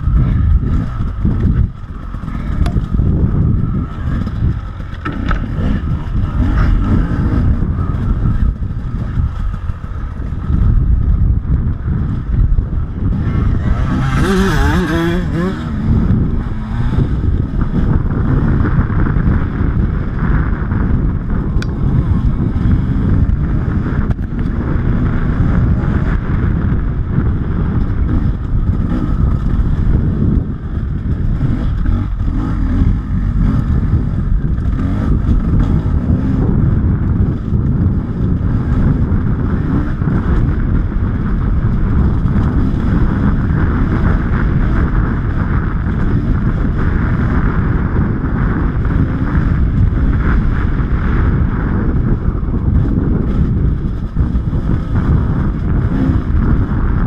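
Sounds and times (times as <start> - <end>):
dirt bike engine running: 0.0 - 57.0
wind buffeting microphone: 0.0 - 57.0.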